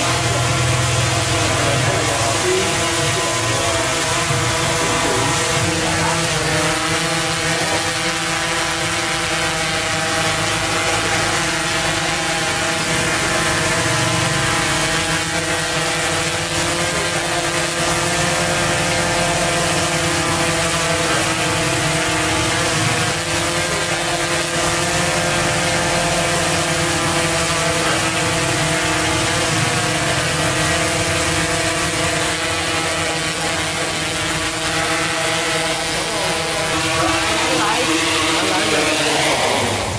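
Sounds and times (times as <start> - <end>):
drone propellers buzzing: 0.0 - 39.9.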